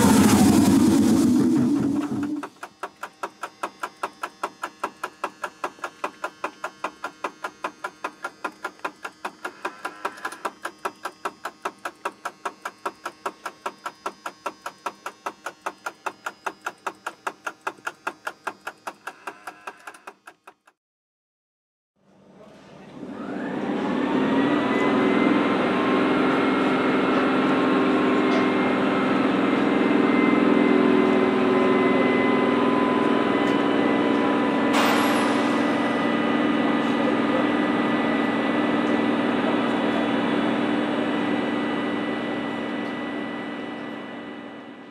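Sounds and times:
locomotive machinery whine: 0.0 - 19.9, 22.9 - 44.9
ticking in locomotive cab: 2.3 - 20.8.

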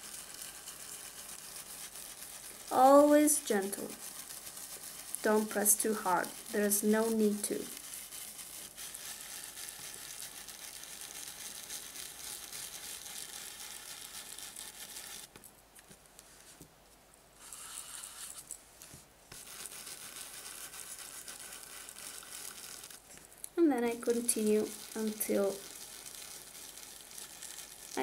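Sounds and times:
stencil brush rubbing on stencil: 0.0 - 15.3, 17.4 - 18.5, 19.3 - 23.0, 24.0 - 28.0.

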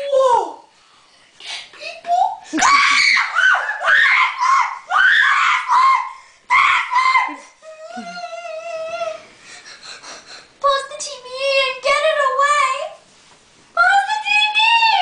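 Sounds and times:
children screaming and shrieking: 2.5 - 7.5.

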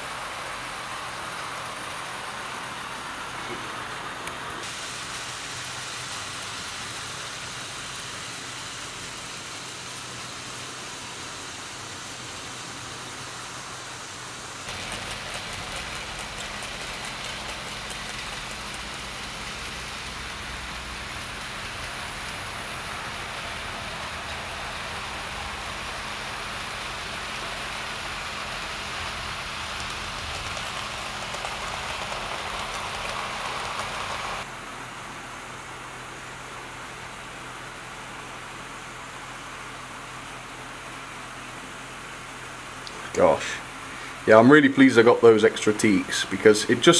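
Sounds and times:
model train wheels on rails: 0.0 - 34.6, 38.3 - 46.9
model train wheels rattling on rails: 14.6 - 34.5
small electric motors: 14.6 - 34.5.

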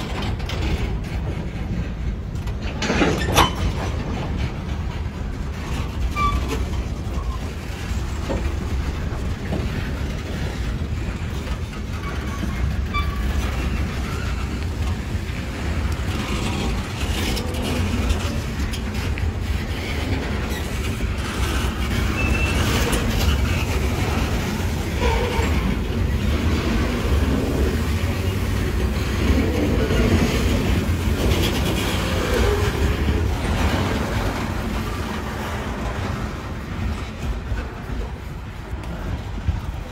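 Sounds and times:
train cars rumbling on steel wheels: 0.0 - 39.9
faint wheel squeals: 22.0 - 23.6.

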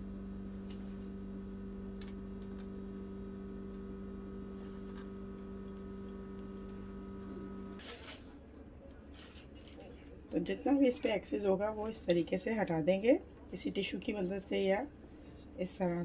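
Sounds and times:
steady low hum: 0.0 - 7.8.

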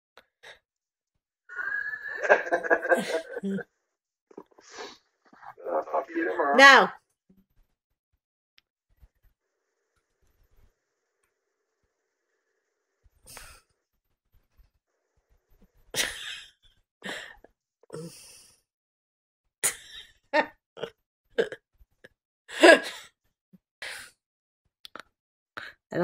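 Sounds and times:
person breathing and sighing: 4.4 - 5.6
breathy vocal sounds: 17.9 - 18.6.

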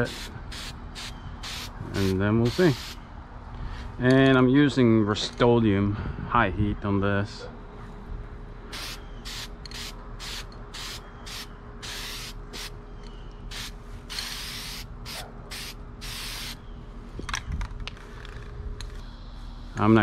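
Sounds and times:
spray-paint can hissing: 0.1 - 1.7, 8.8 - 12.7, 13.5 - 16.6.

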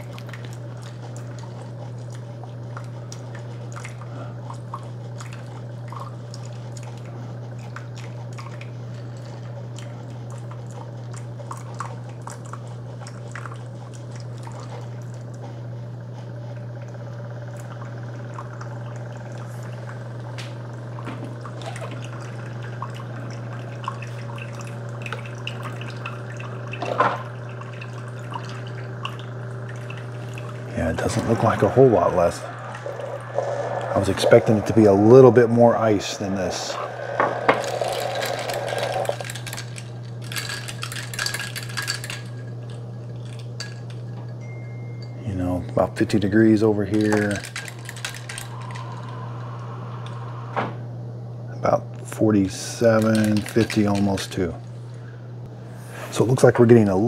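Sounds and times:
pump humming: 16.4 - 43.8.

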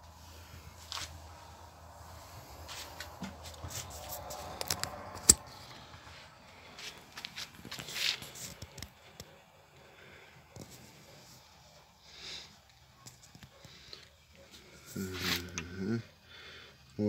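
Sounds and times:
rustling and handling: 2.1 - 5.7, 6.7 - 9.4.

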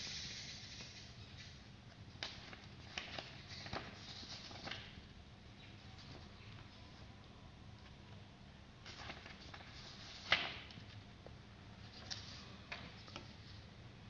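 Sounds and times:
paper rustling: 2.1 - 5.0, 5.7 - 7.1, 8.8 - 11.1, 11.8 - 13.7
paper crackling: 2.1 - 5.1, 5.7 - 7.1, 8.8 - 11.0, 11.8 - 13.7.

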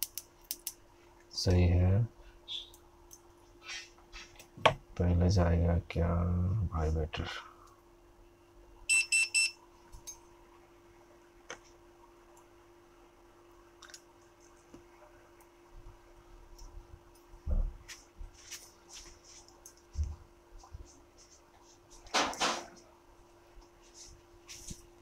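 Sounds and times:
small tools clicking and tapping: 0.0 - 0.8
faint steady hum: 0.0 - 25.0.

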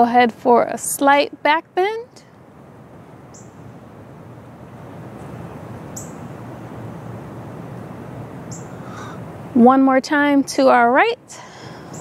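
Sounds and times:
outdoor background rumble: 0.0 - 12.0
high bird chirps: 8.5 - 9.2.

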